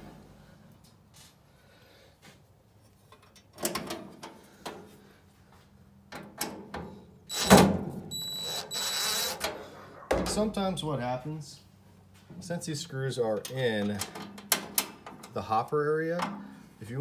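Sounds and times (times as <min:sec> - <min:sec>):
impact driver whine: 0:07.3 - 0:09.5.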